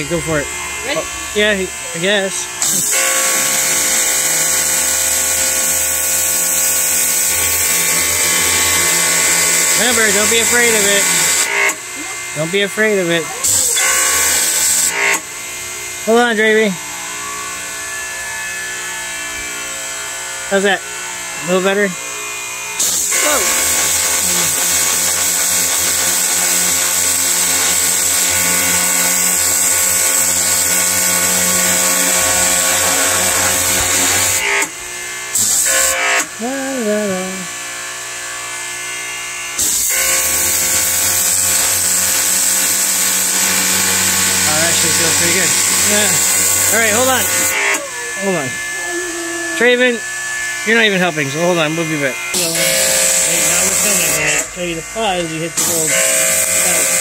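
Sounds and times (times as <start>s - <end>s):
high-pressure water jet hissing: 0.0s - 15.3s, 22.8s - 37.2s, 39.6s - 48.8s, 50.8s - 57.0s
pressure washer motor hum: 0.0s - 57.0s
water jet hissing on wood: 22.8s - 34.7s, 39.6s - 47.8s.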